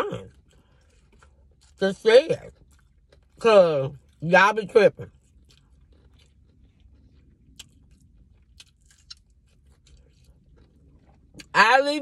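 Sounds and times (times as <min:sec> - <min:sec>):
chewing fried chicken: 0:00.0 - 0:12.0.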